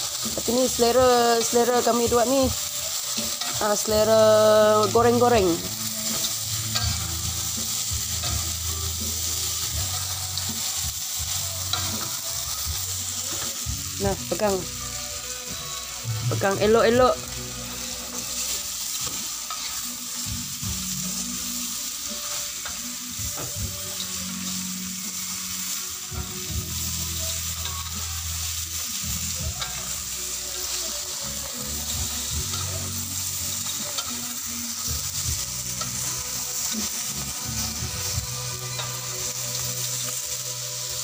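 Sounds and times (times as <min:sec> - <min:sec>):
grubs sizzling in a wok: 0:00.0 - 0:41.0
metal spatula scraping a pan: 0:01.3 - 0:13.7, 0:17.2 - 0:20.3.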